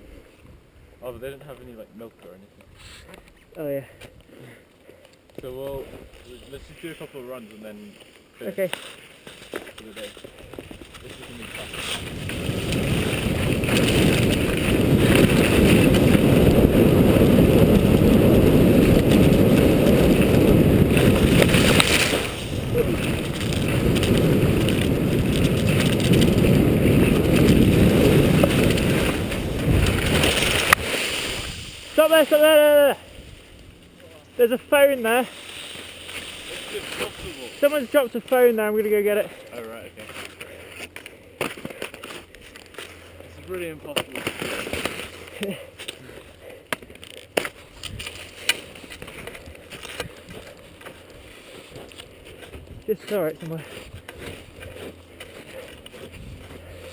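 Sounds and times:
skis scraping over slushy snow: 0:08.7 - 0:32.8, 0:34.7 - 0:38.5
wind buffeting microphone: 0:10.5 - 0:31.8, 0:52.1 - 0:53.0, 0:55.5 - 0:56.9.

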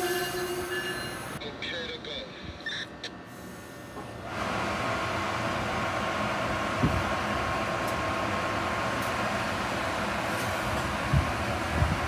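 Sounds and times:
locomotive cooling blowers whirring: 0:04.0 - 0:12.0.

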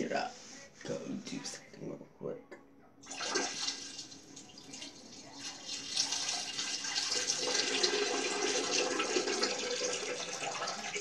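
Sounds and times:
water running: 0:03.0 - 0:11.0.

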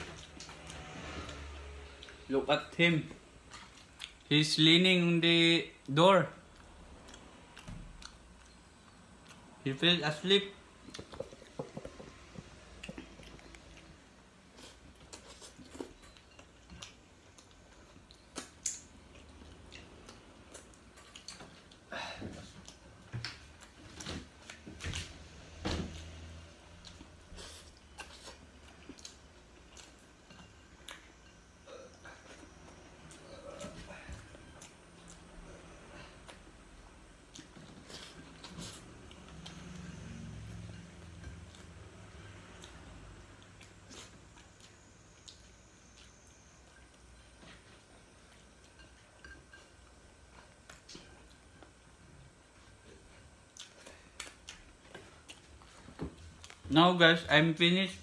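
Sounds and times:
soft chewing: 0:03.1 - 0:04.3, 0:06.4 - 0:09.6, 0:10.8 - 0:25.2, 0:25.9 - 0:56.7
wet chewing smacks: 0:50.4 - 0:56.7.

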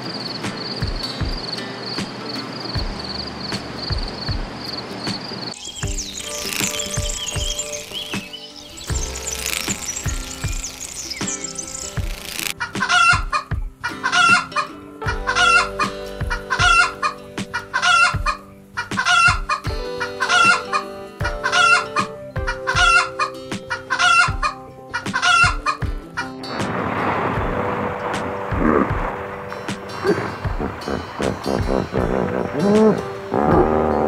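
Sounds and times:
background music with low beat: 0:00.4 - 0:34.0
chicken calling: 0:12.6 - 0:15.8, 0:16.4 - 0:22.1, 0:22.7 - 0:26.3.

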